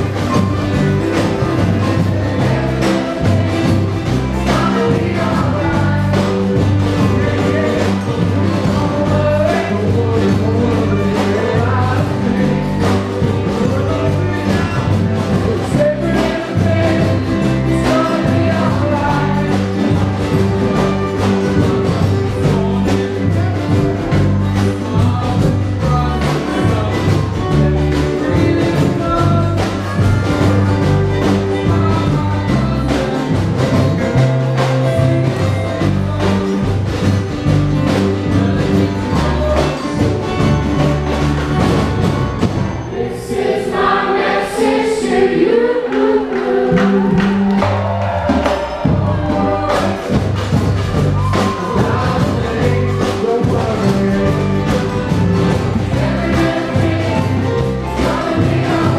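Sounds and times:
people singing: 0:00.0 - 0:42.1, 0:42.7 - 0:58.9
bass drums beating: 0:00.0 - 0:42.9, 0:46.3 - 0:58.9
strummed guitars: 0:00.0 - 0:58.9.

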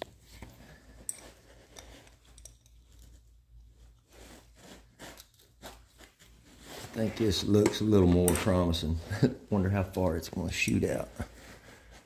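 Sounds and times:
wrench clicking and scraping metal: 0:01.0 - 0:03.1.

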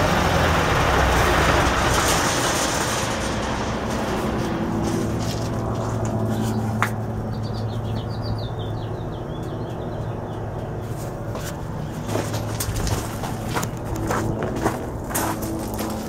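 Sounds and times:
generator engine humming: 0:00.0 - 0:16.0
bird chirping: 0:06.3 - 0:11.0.

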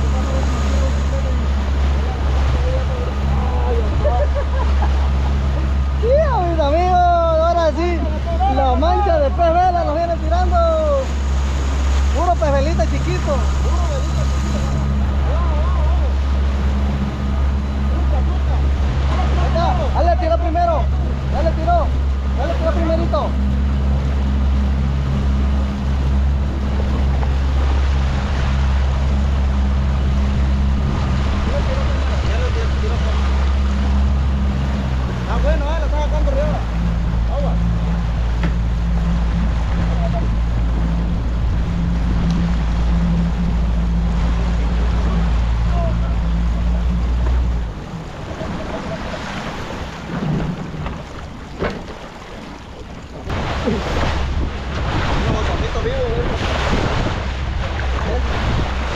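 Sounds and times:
outboard motor droning: 0:00.0 - 0:58.9
rush of boat wake: 0:00.0 - 0:58.9
wind buffeting microphone: 0:00.0 - 0:58.9
wind on microphone: 0:36.6 - 0:58.9.

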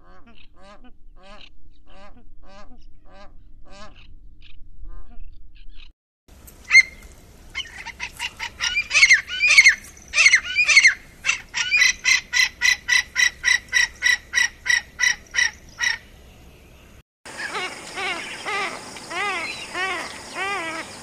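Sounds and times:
bird calling: 0:06.6 - 0:16.2, 0:17.3 - 0:21.0.

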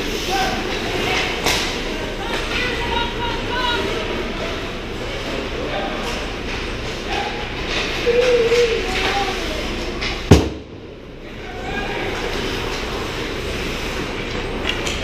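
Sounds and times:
sharp loud bang: 0:10.3 - 0:10.9.

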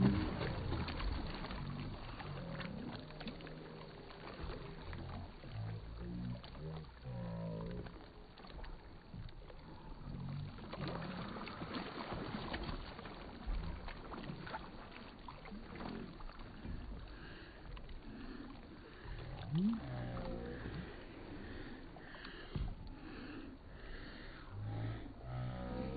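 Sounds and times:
kayak paddle splashing: 0:00.0 - 0:25.9.

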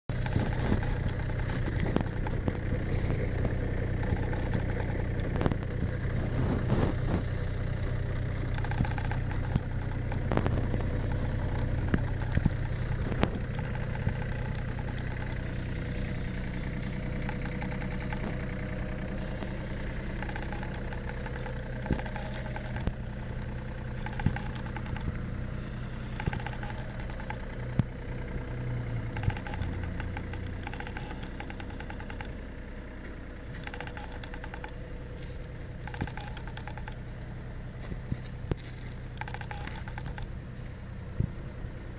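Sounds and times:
diesel excavator engine idling: 0:00.0 - 0:41.9.

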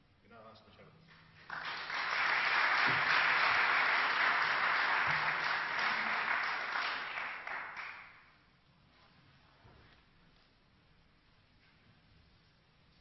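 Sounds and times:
audience applauding: 0:01.4 - 0:08.3.

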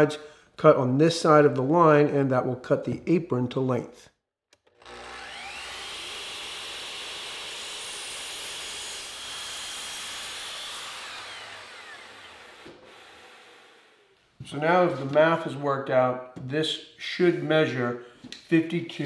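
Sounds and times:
miter saw cutting wood: 0:04.6 - 0:14.1.

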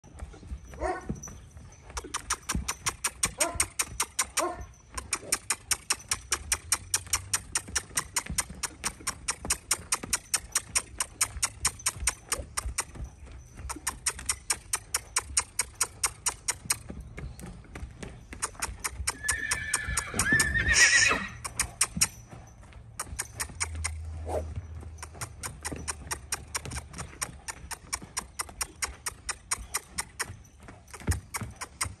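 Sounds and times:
hooves trotting on sand: 0:00.0 - 0:32.0
horse whinny: 0:19.0 - 0:21.8.

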